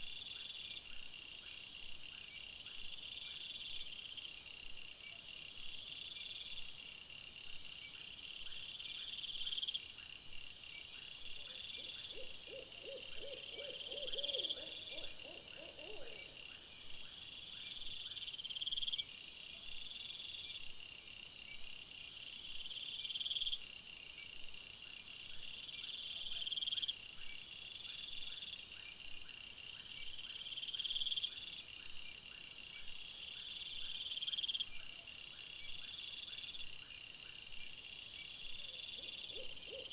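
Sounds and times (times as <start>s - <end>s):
crickets calling: 10.8s - 16.6s, 37.6s - 39.9s.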